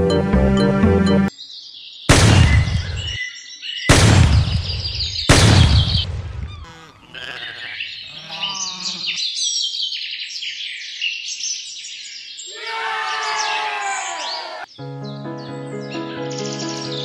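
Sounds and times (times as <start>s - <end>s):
birds chirping: 1.3s - 17.0s
livestock bleating: 6.6s - 9.2s.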